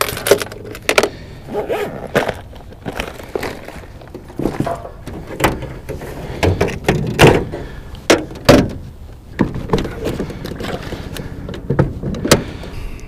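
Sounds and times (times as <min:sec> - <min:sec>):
bag and plastic boxes rustling: 0:00.0 - 0:07.8.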